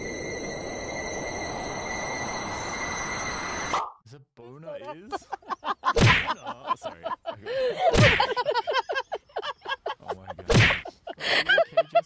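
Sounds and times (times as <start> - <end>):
loud whacking thumps: 5.9 - 6.4, 7.9 - 8.4, 10.4 - 10.9.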